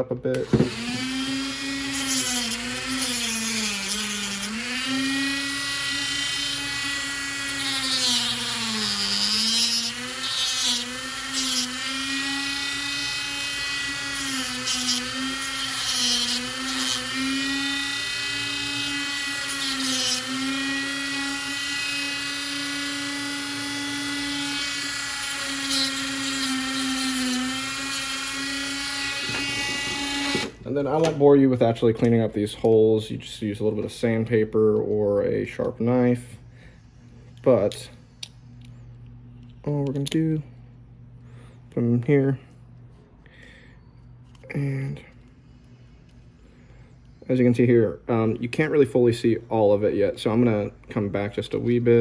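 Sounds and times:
rotary tool whining: 0.3s - 30.6s.

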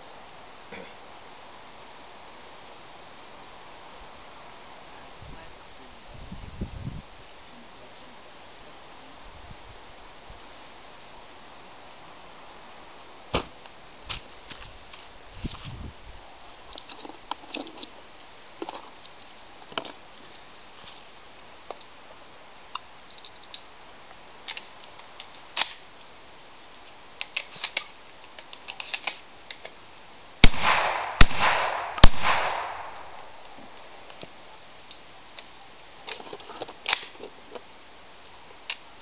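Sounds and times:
quiet clicks and rustles: 16.7s - 22.0s, 22.7s - 30.0s, 32.5s - 39.0s
shotgun shots with echo: 30.4s - 33.4s.

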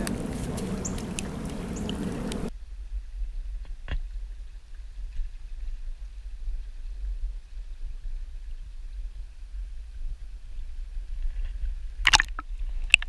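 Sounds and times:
rustling in wet sticks and leaves: 0.0s - 2.5s
shallow creek flowing: 0.0s - 2.5s
low rumble: 0.0s - 3.6s.

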